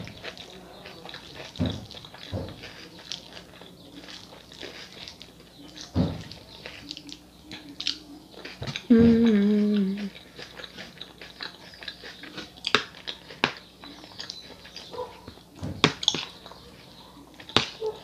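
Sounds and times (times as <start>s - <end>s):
chewing with wet mouth sounds: 0.0s - 18.0s
person humming: 8.9s - 10.1s.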